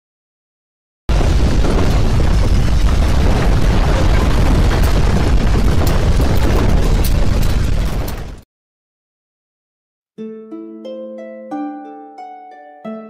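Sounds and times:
deep rumble of rockfall: 1.1s - 8.4s
sharp cracks: 1.1s - 8.4s.

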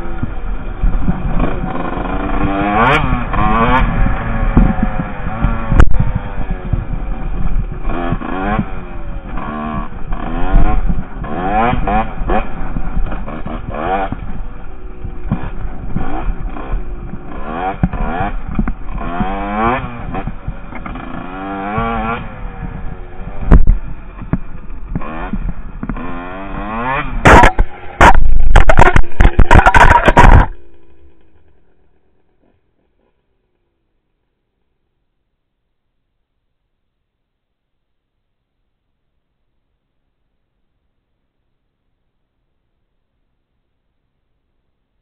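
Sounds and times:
dirt bike engine revving: 0.0s - 33.2s.

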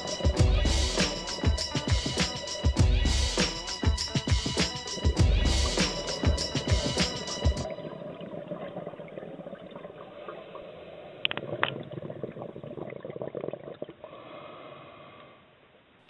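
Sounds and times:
underwater bubbling and crackling: 7.6s - 14.2s.

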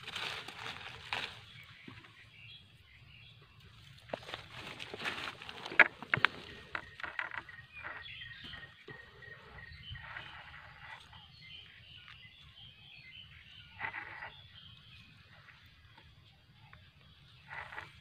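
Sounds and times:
dry leaves rustling and crackling: 0.0s - 2.2s, 3.8s - 7.3s
faint chirping calls: 0.0s - 18.0s.

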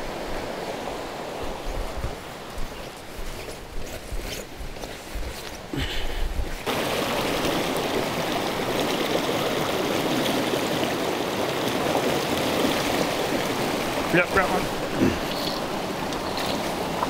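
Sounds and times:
stream rushing over rocks: 0.0s - 3.1s, 5.6s - 17.0s
footsteps on forest trail: 1.2s - 6.7s.

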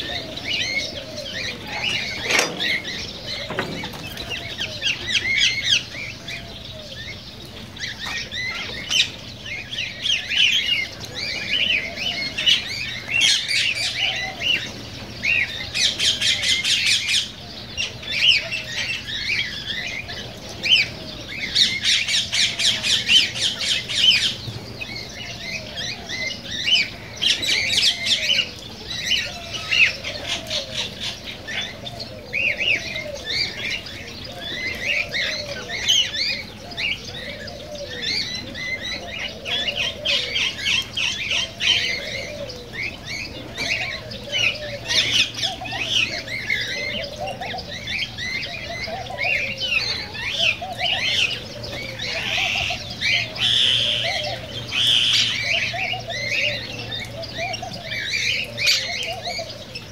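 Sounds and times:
low rise-and-fall bird call: 25.0s - 59.9s.

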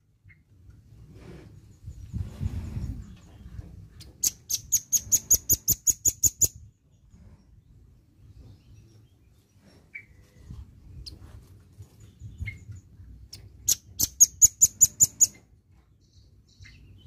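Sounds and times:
bird chirping: 2.8s - 10.3s, 12.0s - 17.0s.

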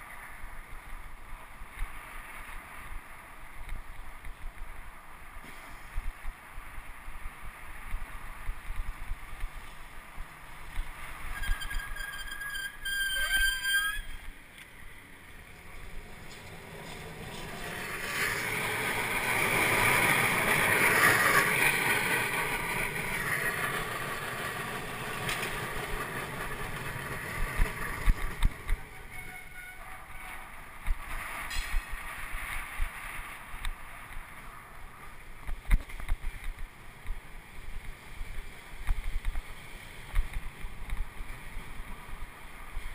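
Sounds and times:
streetcar passing: 0.0s - 42.9s
high squeal: 11.3s - 14.3s.

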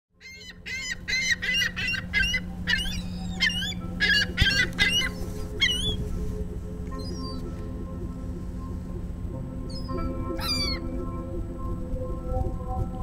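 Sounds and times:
gulls calling: 0.2s - 8.0s, 9.6s - 11.2s
steady low hum: 0.2s - 13.0s.

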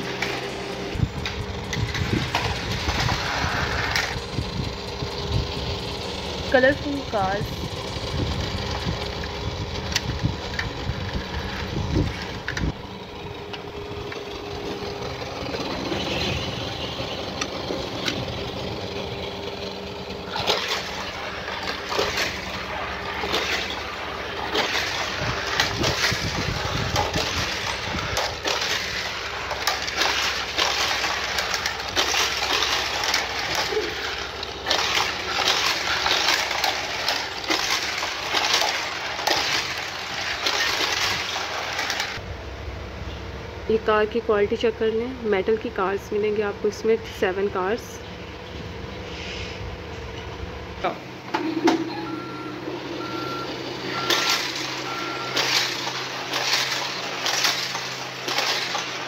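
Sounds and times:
toy cars rattling on plastic track: 1.2s - 4.2s, 20.2s - 42.2s, 53.9s - 59.0s.

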